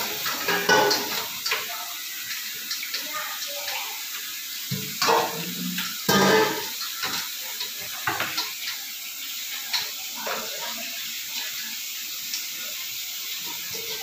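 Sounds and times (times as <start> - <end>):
water washing bowls: 0.0 - 14.0
metal bowls clattering: 0.2 - 1.3, 5.0 - 7.2
metal bowls clinking and scraping: 5.0 - 7.2.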